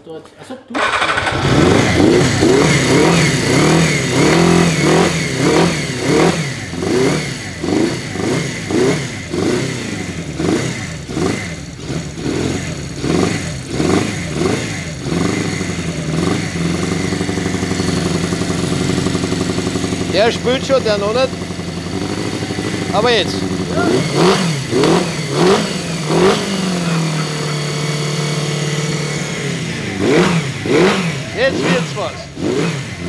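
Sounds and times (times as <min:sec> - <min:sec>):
motorcycle engine revving unevenly: 0:00.8 - 0:33.0.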